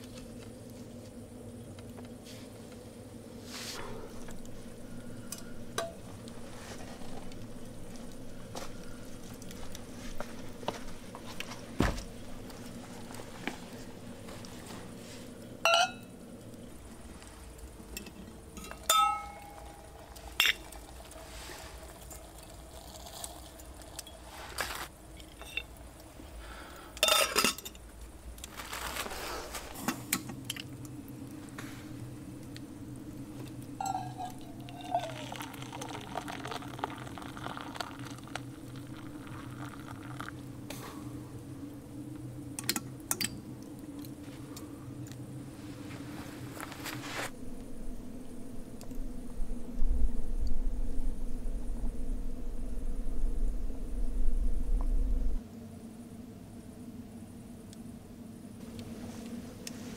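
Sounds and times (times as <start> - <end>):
campfire crackling: 0.0 - 55.4
metal kettle clinking: 15.7 - 16.0, 18.0 - 19.6, 33.8 - 35.0
liquid pouring into metal cup: 33.8 - 40.4.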